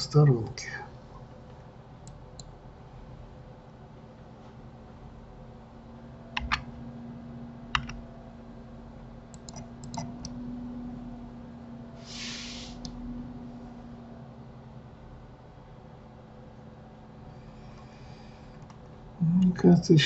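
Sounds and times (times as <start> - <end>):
steady low hum: 0.0 - 20.0
keyboard and mouse clicks: 6.4 - 6.7, 7.7 - 8.0, 9.3 - 10.4
short hiss: 12.0 - 12.9.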